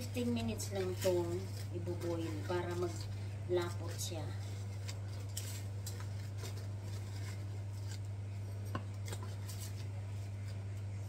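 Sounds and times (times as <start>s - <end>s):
spoon scooping sugar: 0.0s - 11.0s
steady low hum: 0.0s - 11.0s.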